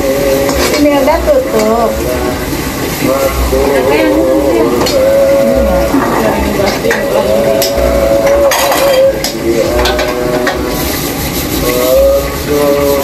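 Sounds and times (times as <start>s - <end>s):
oil sizzling: 0.0s - 13.0s
metal utensil scraping frying pan: 5.8s - 13.0s.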